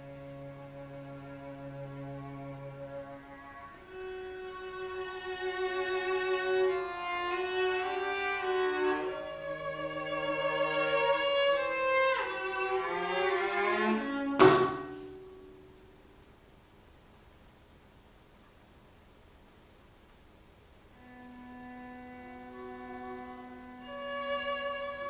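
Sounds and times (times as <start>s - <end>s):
cellos playing bowed notes: 0.0s - 15.5s, 21.0s - 25.0s.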